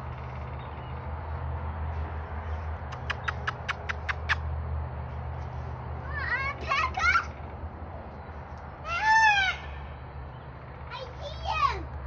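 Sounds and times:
animal clicking calls: 2.8s - 4.5s.

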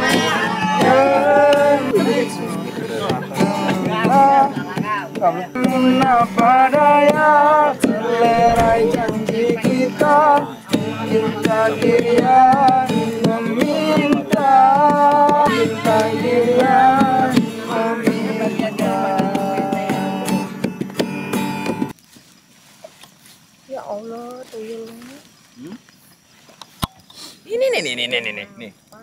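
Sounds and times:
voices singing: 0.0s - 20.4s
acoustic guitar strumming: 0.0s - 21.9s.

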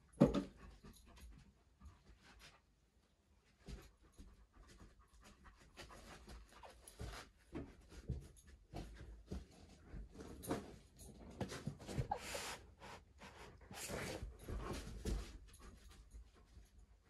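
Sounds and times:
dog sniffing: 12.0s - 14.1s.

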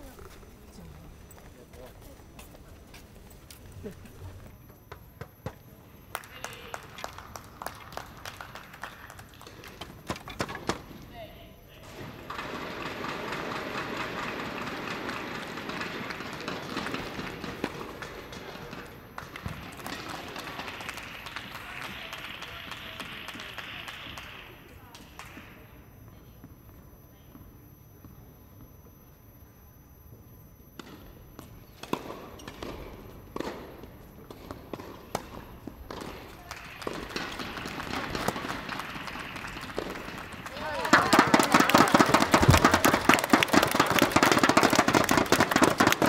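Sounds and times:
players' footsteps: 0.0s - 11.0s, 11.8s - 23.9s, 30.8s - 46.0s
audience applauding: 6.1s - 9.8s, 12.3s - 18.1s, 19.2s - 24.6s, 36.4s - 46.0s.

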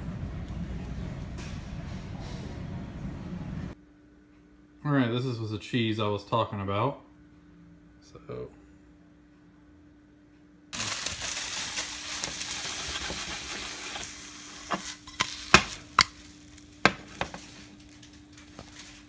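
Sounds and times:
cheese sizzling in a skillet: 10.8s - 18.0s.

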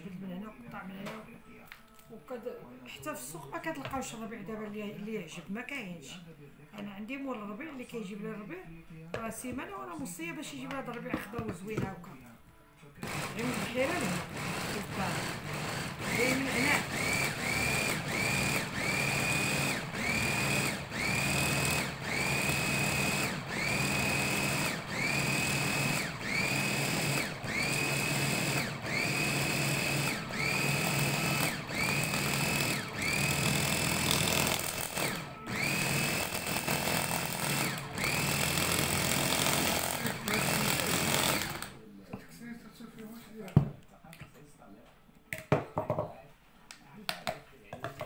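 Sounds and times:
electric chopper motor whine: 15.4s - 41.7s.

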